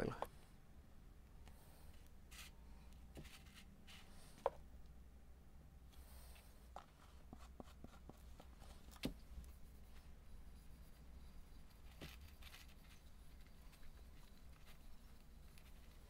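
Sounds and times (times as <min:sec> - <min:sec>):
hands rubbing wood: 0:06.3 - 0:16.0.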